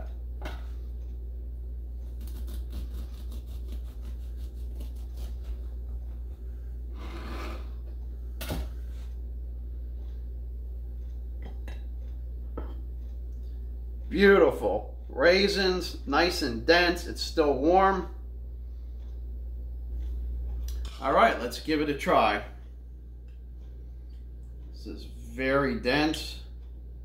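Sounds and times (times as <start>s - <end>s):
low hum: 0.0s - 27.0s
bread knife sawing crust: 2.2s - 5.7s.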